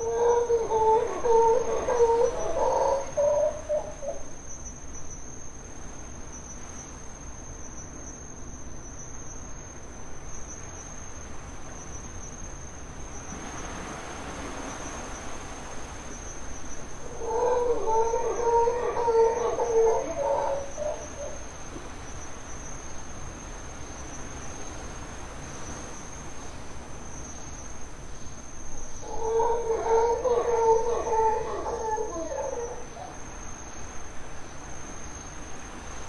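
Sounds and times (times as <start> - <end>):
howler monkeys roaring: 0.0 - 4.2, 17.0 - 21.4, 29.0 - 33.2.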